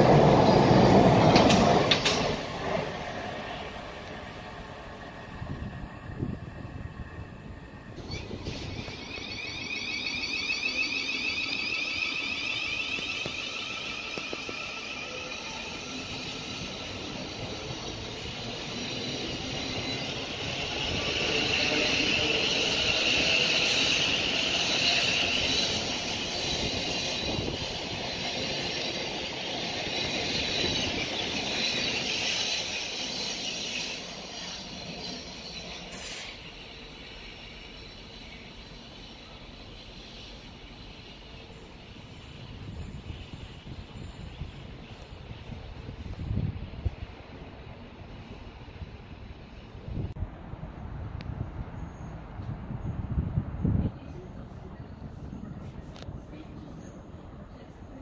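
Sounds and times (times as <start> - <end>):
train wheels rumbling on rails: 0.0 - 58.0
electric train motor whine: 5.5 - 27.9.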